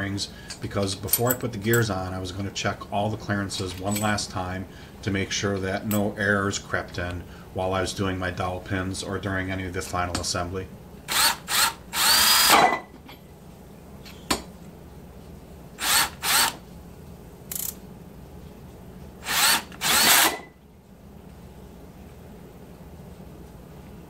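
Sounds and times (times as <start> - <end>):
cordless drill whining: 11.1 - 12.6, 15.8 - 16.6, 19.2 - 20.5.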